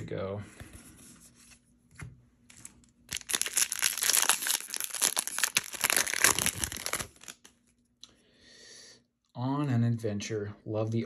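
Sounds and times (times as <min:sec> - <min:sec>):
foil wrapper crinkling: 0:02.6 - 0:07.5.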